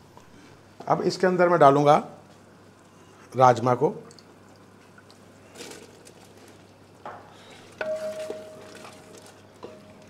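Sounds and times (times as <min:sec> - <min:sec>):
wooden spoon stirring in pan: 0:04.7 - 0:10.0.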